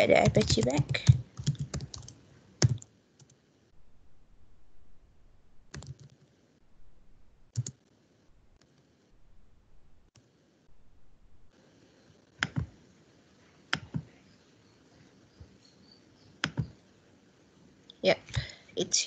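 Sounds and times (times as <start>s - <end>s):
keyboard keys clicking: 0.0s - 3.4s, 5.7s - 6.2s, 7.5s - 7.8s, 12.4s - 12.7s, 16.4s - 16.7s.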